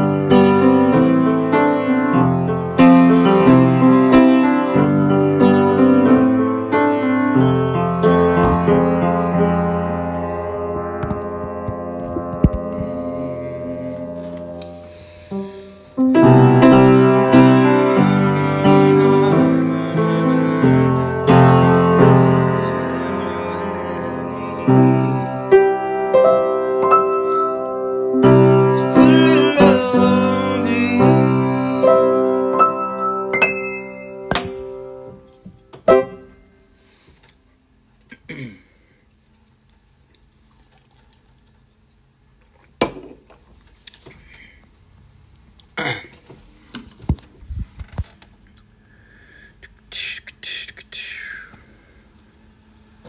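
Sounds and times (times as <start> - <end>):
acoustic guitar chords: 0.0 - 15.0, 16.0 - 35.4.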